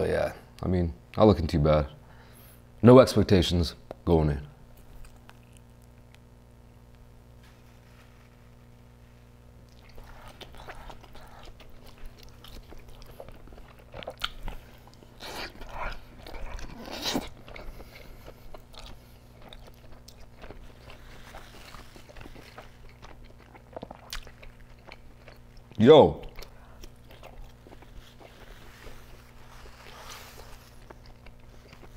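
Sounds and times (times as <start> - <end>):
person chewing pizza: 4.8 - 6.2, 9.6 - 31.9
wet mouth sounds: 9.7 - 31.9.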